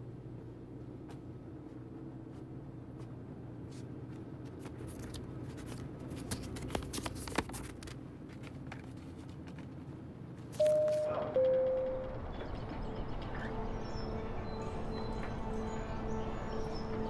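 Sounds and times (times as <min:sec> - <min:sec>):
electronic door chime: 0:10.6 - 0:12.5.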